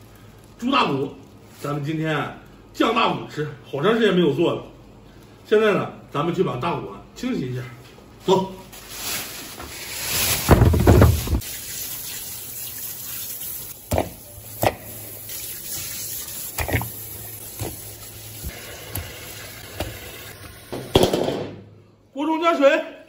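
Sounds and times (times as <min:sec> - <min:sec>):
plastic bag rustling: 0:08.0 - 0:11.5
running tap water: 0:10.6 - 0:21.0.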